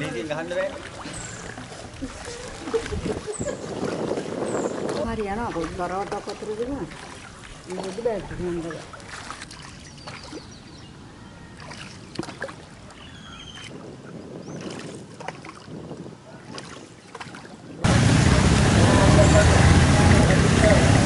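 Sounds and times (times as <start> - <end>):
floodwater sloshing and splashing: 0.0 - 21.0
loud steady rushing noise: 17.8 - 21.0.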